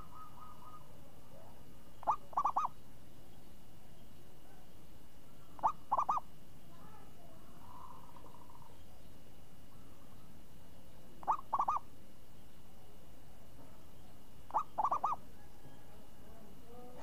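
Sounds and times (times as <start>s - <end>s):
dove cooing: 0.0s - 2.8s, 5.4s - 6.3s, 7.6s - 8.8s, 11.2s - 11.9s, 14.5s - 16.2s.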